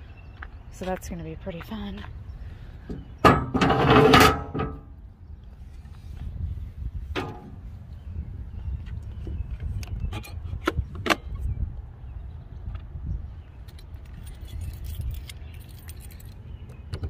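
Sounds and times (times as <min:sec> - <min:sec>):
keys jangling and clinking: 0:14.1 - 0:16.6.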